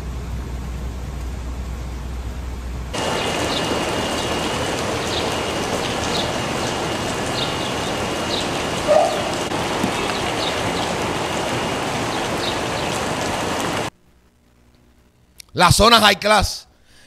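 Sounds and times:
rain hissing: 2.0s - 14.0s.

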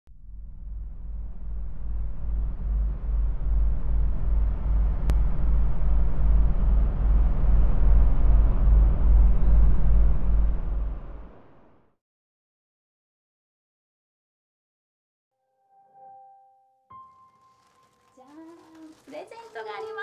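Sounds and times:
low rumbling drone: 0.1s - 12.0s.

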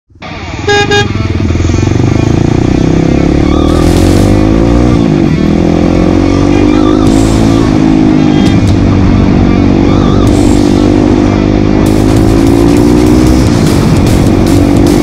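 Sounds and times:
motorcycle engine accelerating: 0.2s - 15.0s.

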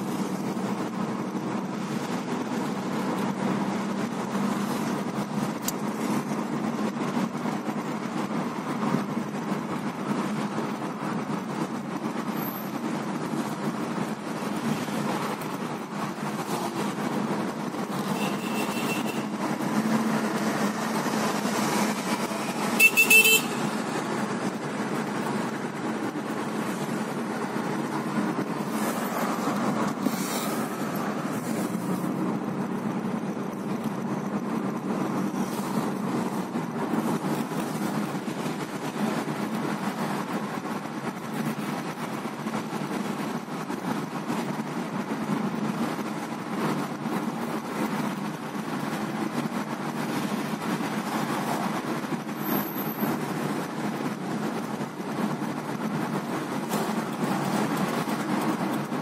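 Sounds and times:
road and engine noise: 0.0s - 59.0s
car horn honk: 18.2s - 19.3s, 22.8s - 23.7s.

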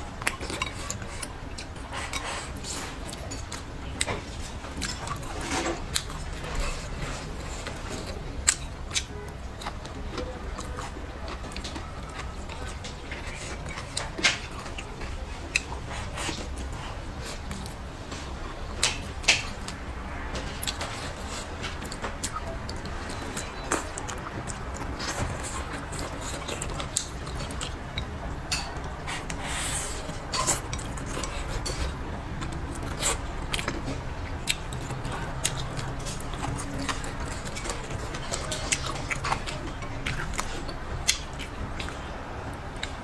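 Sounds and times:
person slurping and chewing: 0.0s - 42.1s.

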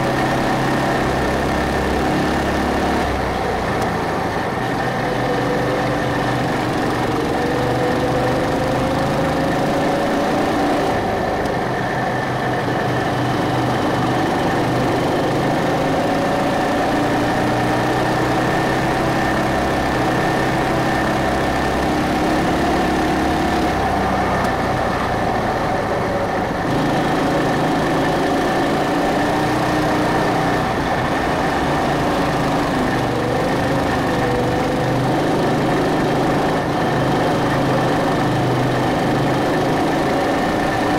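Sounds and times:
go-kart engine revving: 0.0s - 40.9s.

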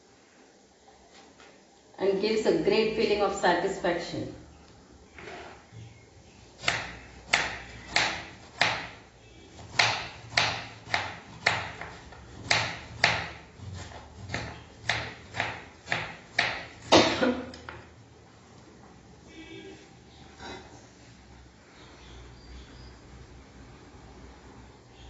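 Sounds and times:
knife chopping on wooden board: 6.6s - 9.0s, 9.6s - 17.1s.

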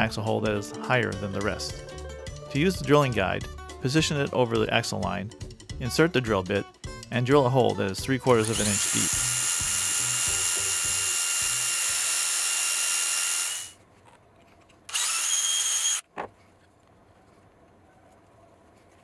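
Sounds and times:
cordless drill boring into wood: 8.3s - 13.8s, 14.9s - 16.0s.

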